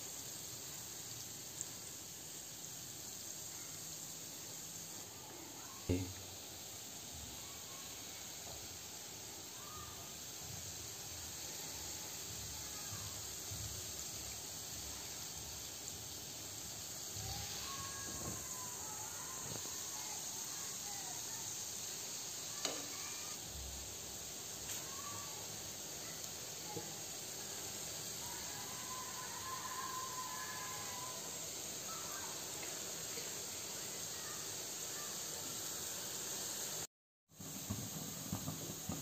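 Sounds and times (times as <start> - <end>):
dough sizzling in hot oil: 0.0 - 39.0.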